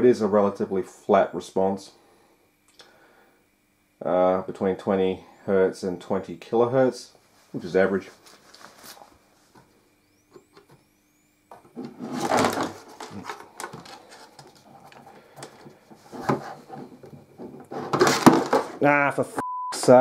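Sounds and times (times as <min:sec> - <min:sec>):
handling rustling and knocks: 0:11.5 - 0:18.8
faint steady high tone: 0:18.8 - 0:20.0.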